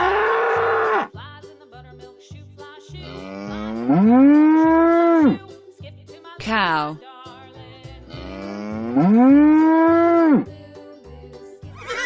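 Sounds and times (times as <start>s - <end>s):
bull bellowing: 0.0s - 1.1s, 3.0s - 5.4s, 8.1s - 10.5s
cow mooing: 0.0s - 1.1s, 3.0s - 5.4s, 8.1s - 10.5s
children's music with steady beat: 0.0s - 12.0s.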